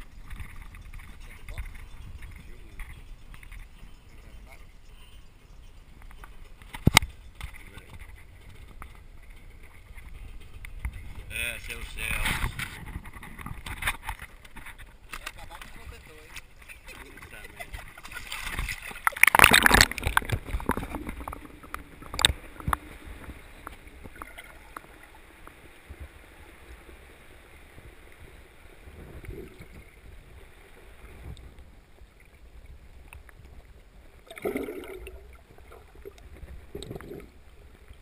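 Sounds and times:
water splashing against camera housing: 0:06.0 - 0:25.5.

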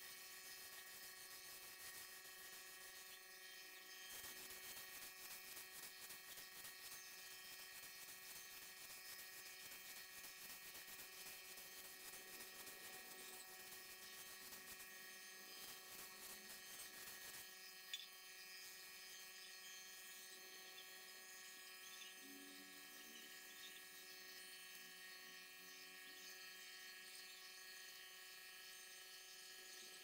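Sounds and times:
electrical hum: 0:00.0 - 0:30.0.

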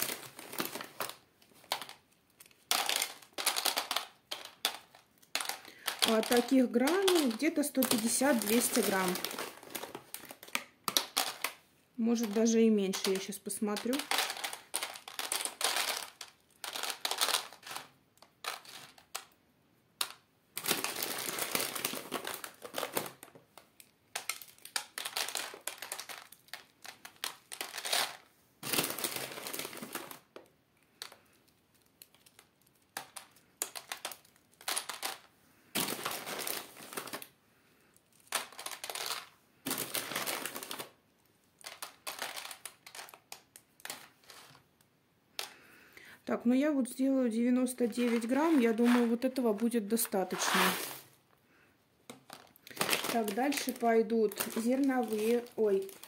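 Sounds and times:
paper bag crinkling: 0:00.0 - 0:01.9, 0:05.3 - 0:11.5, 0:20.6 - 0:23.2, 0:47.8 - 0:51.2, 0:52.3 - 0:56.0
grain pellets snapping and rattling: 0:00.0 - 0:19.4, 0:20.0 - 0:41.0, 0:41.6 - 0:44.8, 0:47.8 - 0:51.2, 0:52.1 - 0:56.0.

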